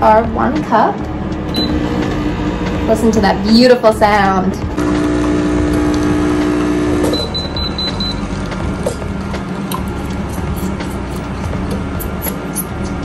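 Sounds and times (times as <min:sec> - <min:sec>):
espresso machine pump humming: 0:04.7 - 0:12.6.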